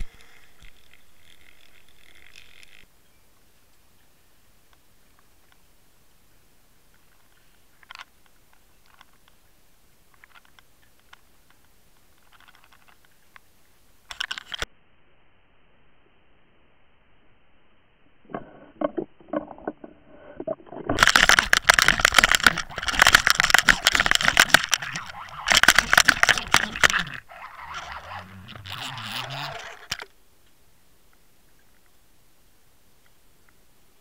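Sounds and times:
fish thrashing on lure: 18.3 - 30.1.

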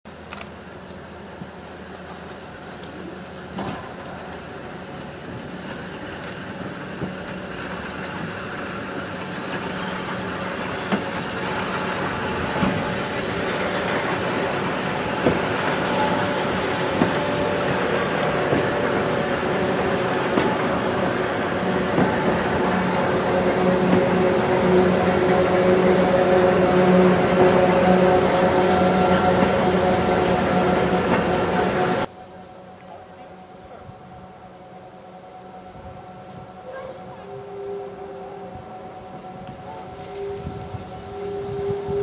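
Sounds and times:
electric locomotives humming: 0.1 - 42.0
wheels clicking over rail joints: 5.2 - 27.6.

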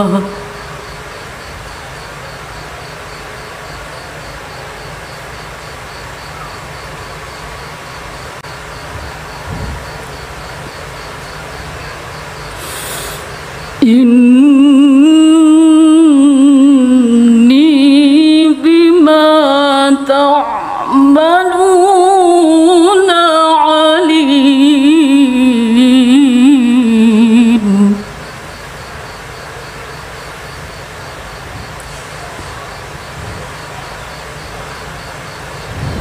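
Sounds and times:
woman reciting melodically: 0.0 - 1.0, 12.6 - 28.4
background hiss: 0.0 - 36.0.

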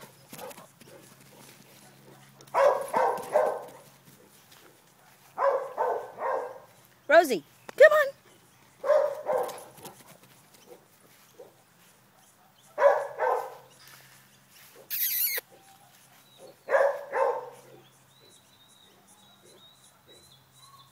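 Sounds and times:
dog barking: 2.0 - 3.9, 5.0 - 6.7, 8.8 - 9.8, 11.4 - 13.7, 16.4 - 17.8
brief hiss: 14.9 - 15.4.

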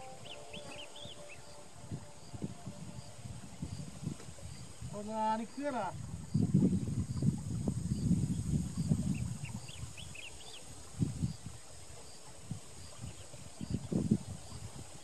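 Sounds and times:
rising bird chirps: 0.0 - 1.6
insect drone: 0.0 - 15.0.

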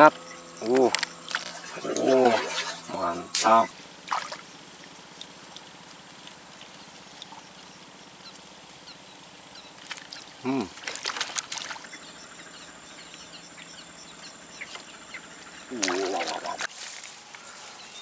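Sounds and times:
splashing water: 4.0 - 7.4, 9.8 - 12.0, 15.7 - 16.7
man exclaiming: 10.4 - 10.7.

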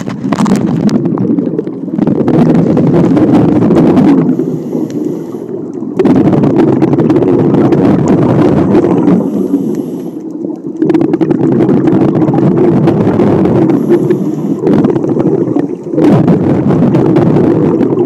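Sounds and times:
crackling exhaled bubbles: 0.0 - 18.0
regulator valve hissing on inhalation: 4.3 - 5.6, 9.2 - 10.2, 13.7 - 14.7.

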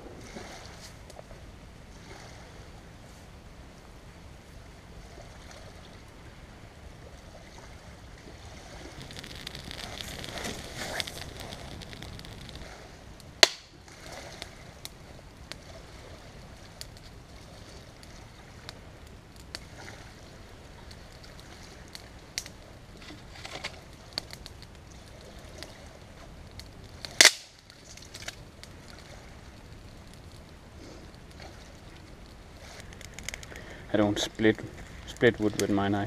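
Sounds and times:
dry wood cracking: 8.8 - 13.7, 20.9 - 35.8
light crackling clicks: 8.8 - 13.8, 20.8 - 35.9.

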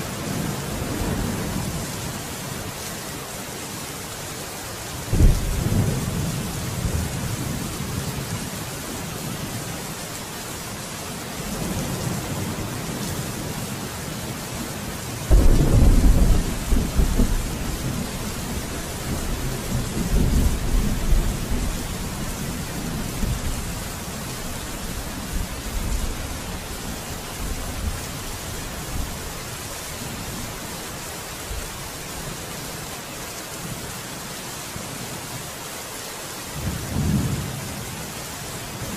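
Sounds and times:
steady rain: 0.0 - 38.9
thunder rumbling: 5.1 - 8.0, 15.3 - 23.9.

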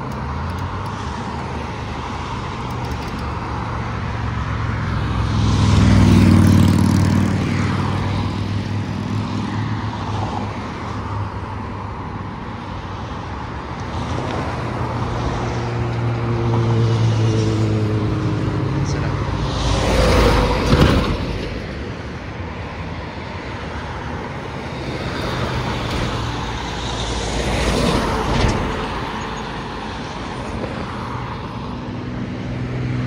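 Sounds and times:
road traffic: 0.0 - 33.0
vehicle passing: 1.0 - 10.6.

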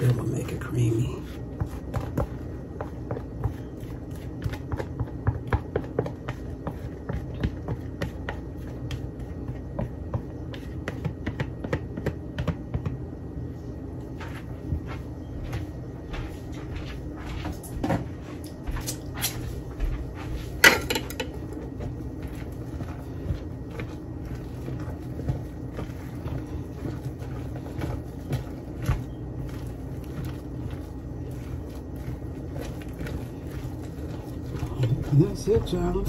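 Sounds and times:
spoon stirring thick salad: 20.2 - 36.0
low hum: 28.0 - 36.0.

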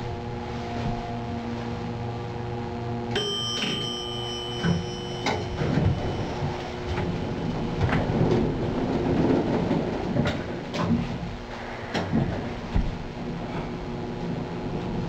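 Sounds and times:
elevator chime ding: 3.1 - 7.5
elevator doors sliding open: 3.2 - 13.0.

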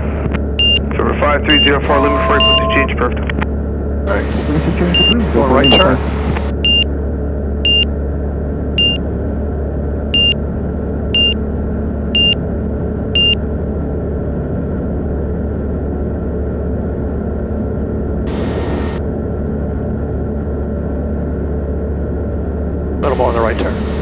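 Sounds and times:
aircraft engine drone: 0.0 - 24.0
high avionics alert beep: 0.6 - 3.0, 4.9 - 6.0, 6.6 - 6.9, 7.7 - 7.9, 8.8 - 9.0, 10.2 - 10.4, 11.2 - 11.4, 12.2 - 12.4, 13.2 - 13.4.

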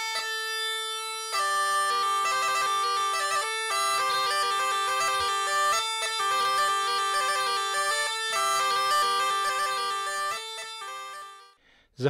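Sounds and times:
bagpipe playing quick melody: 0.0 - 11.6.

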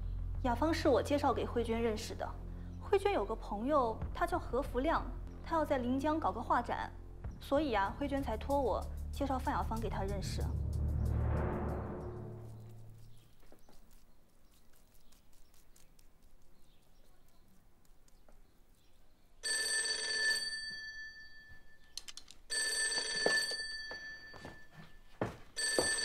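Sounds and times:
telephone ringing: 19.4 - 21.8, 22.5 - 24.8, 25.6 - 26.0.

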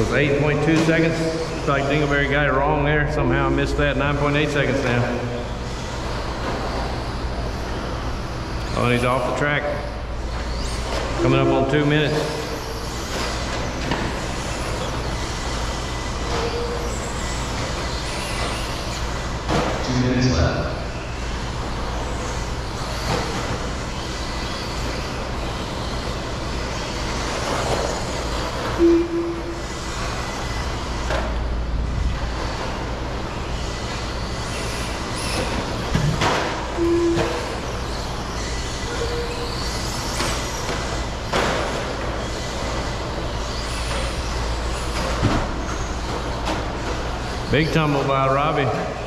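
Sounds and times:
toy trucks rumbling: 0.0 - 19.8, 20.9 - 48.7
short beeps: 11.2 - 11.9, 28.8 - 29.6, 36.8 - 37.5.

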